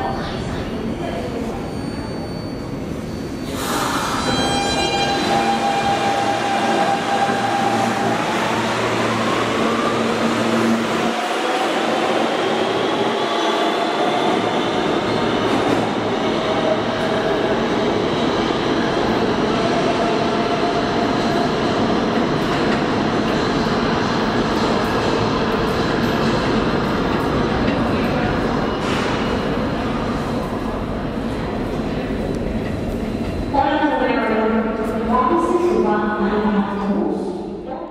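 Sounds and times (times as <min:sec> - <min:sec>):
subway train motor whine: 0:02.6 - 0:25.6.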